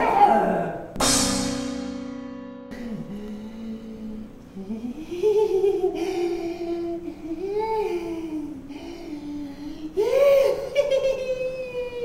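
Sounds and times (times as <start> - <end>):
man humming a tune: 2.7 - 12.0.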